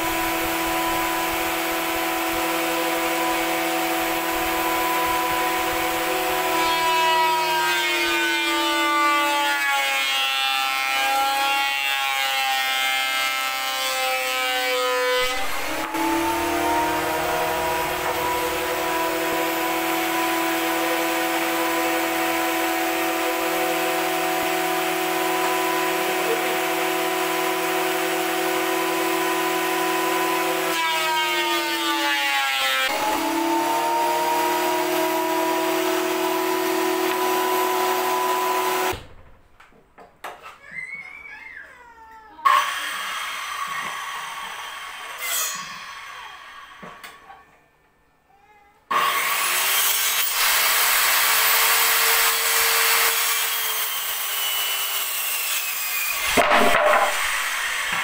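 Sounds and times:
electric motor whining: 15.2s - 19.8s.

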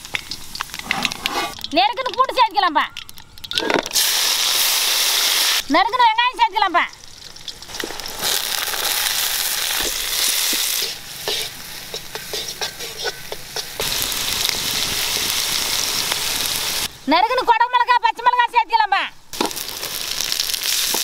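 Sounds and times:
onions sizzling in hot oil: 0.0s - 17.0s, 19.3s - 21.0s
ladle scraping a pan: 0.3s - 1.7s.

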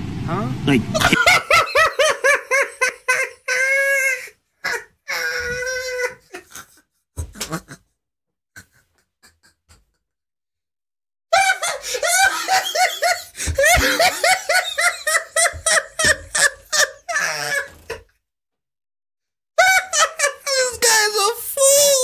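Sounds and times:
man laughing hard: 0.9s - 7.9s, 11.3s - 18.1s, 19.6s - 20.8s.

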